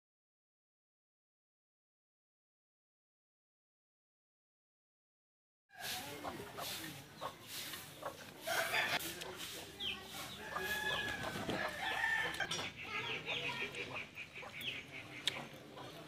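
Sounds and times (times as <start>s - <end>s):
chickens clucking: 5.8s - 16.0s.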